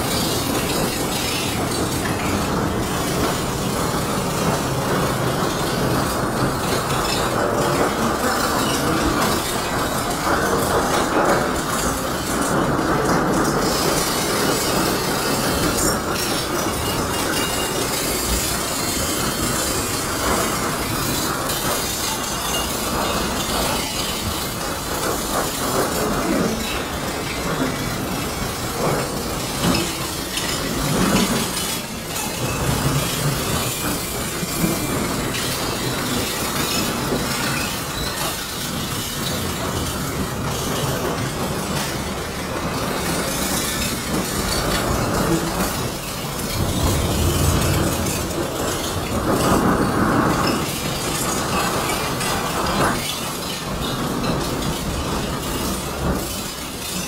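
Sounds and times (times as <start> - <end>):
train cars clattering: 0.0 - 57.0.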